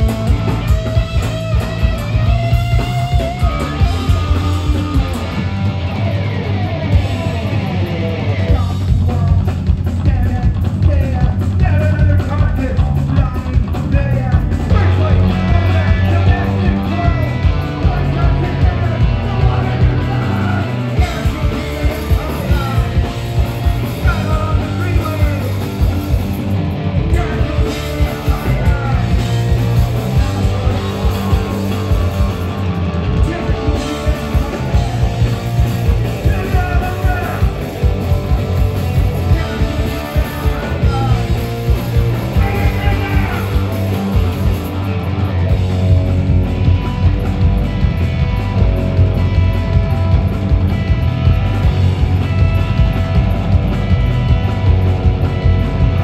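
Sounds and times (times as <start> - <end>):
bass guitar: 0.0 - 56.0
distorted electric guitar: 0.0 - 56.0
fast drums: 0.0 - 56.0
singer shouting into microphone: 36.1 - 37.6, 39.3 - 44.0.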